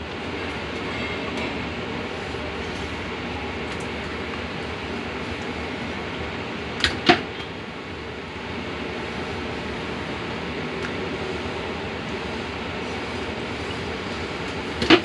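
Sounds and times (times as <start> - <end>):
steady background noise: 0.0 - 15.0.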